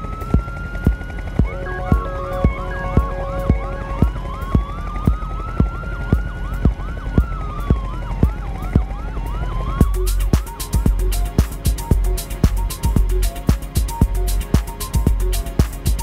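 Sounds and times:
siren-like synth sweep: 0.0 - 15.6
quick synth chirps: 0.9 - 6.2
kick drum beat: 1.4 - 9.0, 9.8 - 16.0
hi-hats and heavy bass: 9.8 - 16.0.

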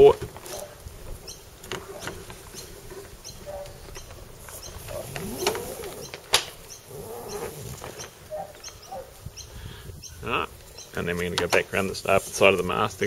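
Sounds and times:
rope rubbing and scraping: 1.8 - 9.3, 11.8 - 13.0.

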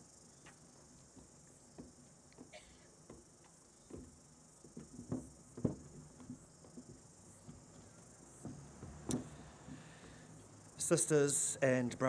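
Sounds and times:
footsteps on stage: 0.4 - 10.5
steady high hiss: 7.1 - 12.0.

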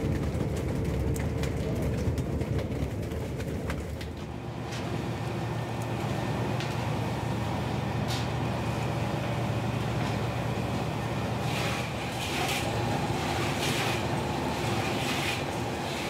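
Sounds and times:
boat engine droning: 4.2 - 16.0.

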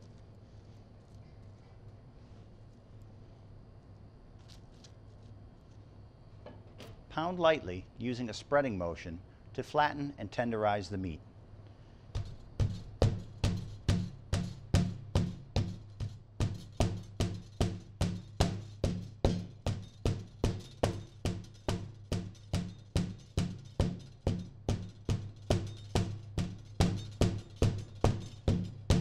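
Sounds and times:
meat mallet pounding: 12.2 - 29.0.

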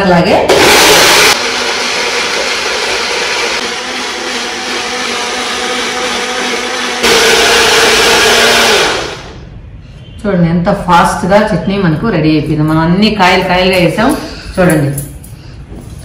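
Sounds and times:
mixer grinder motor whining: 0.5 - 9.4.

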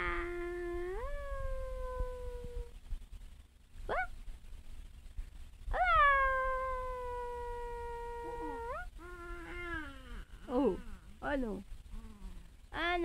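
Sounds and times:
baby cooing: 5.8 - 11.2.

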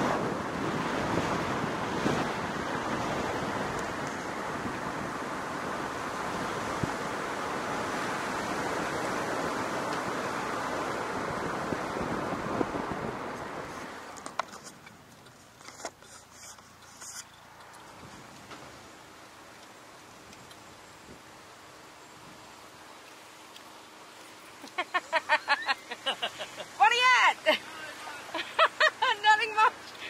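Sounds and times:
wind on microphone: 0.0 - 14.2
car road and wind noise: 0.0 - 30.0.

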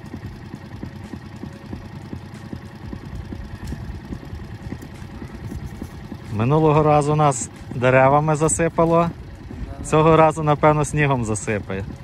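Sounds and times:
wind buffeting microphone: 8.6 - 12.0.

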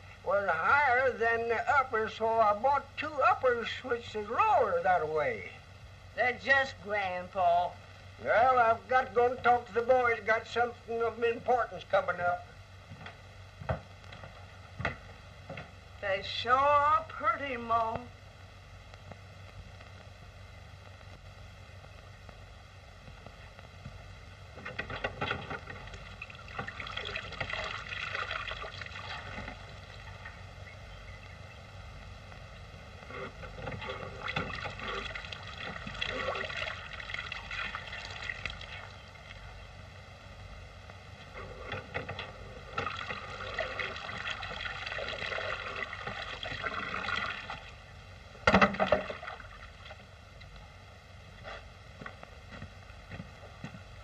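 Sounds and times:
steady soundtrack hiss: 0.0 - 54.0
water splashing at hand pump: 24.6 - 30.2, 33.6 - 39.0, 42.7 - 47.8, 48.5 - 50.0.

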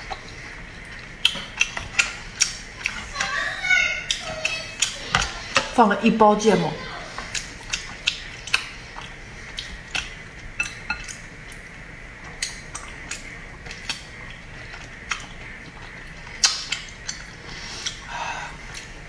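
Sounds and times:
wet chewing clicks: 0.0 - 5.8, 7.1 - 19.0.

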